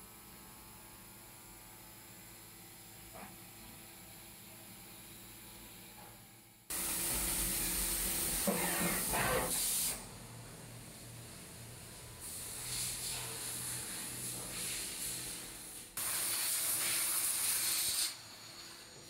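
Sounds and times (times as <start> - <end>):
low machine hum: 0.0 - 9.4
coolant hissing from nozzles: 6.7 - 10.1, 12.2 - 19.0.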